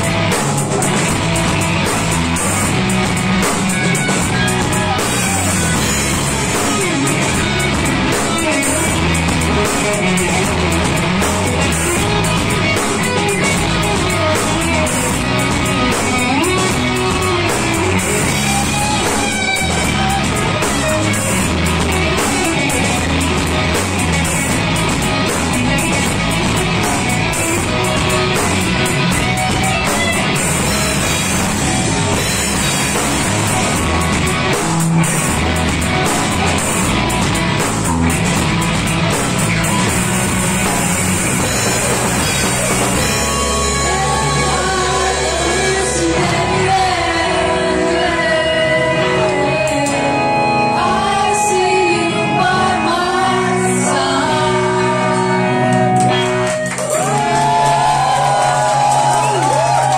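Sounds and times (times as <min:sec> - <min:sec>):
electric guitars: 0:00.0 - 0:59.9
live rock band: 0:00.0 - 0:59.9
shouted vocals: 0:56.8 - 0:59.9.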